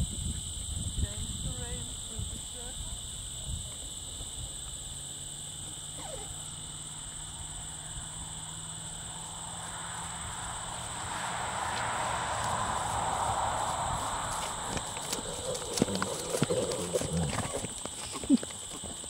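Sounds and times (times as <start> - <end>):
insects chirring: 0.0 - 19.0
rushing noise: 9.5 - 15.7.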